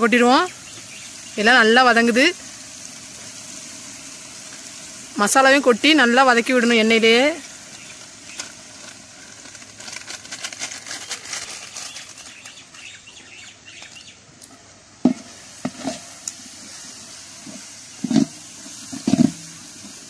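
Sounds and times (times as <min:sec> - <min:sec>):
masala sizzling in oil: 0:00.0 - 0:20.0
ladle scraping pot: 0:15.1 - 0:16.2, 0:17.4 - 0:20.0.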